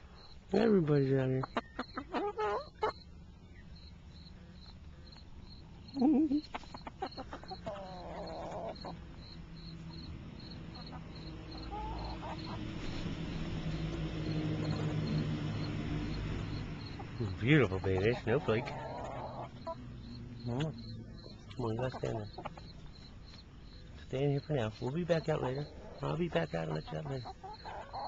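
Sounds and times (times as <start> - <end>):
crickets chirping: 0.0 - 2.0, 2.6 - 28.0
low rumbling noise: 9.0 - 18.4.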